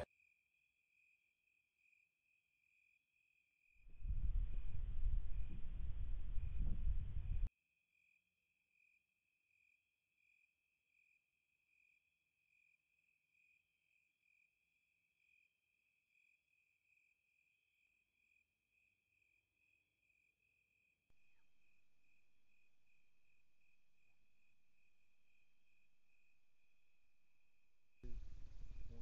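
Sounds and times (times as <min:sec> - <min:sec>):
cricket chirping: 0:00.0 - 0:05.7, 0:08.0 - 0:29.0
faint steady hiss: 0:28.0 - 0:29.0.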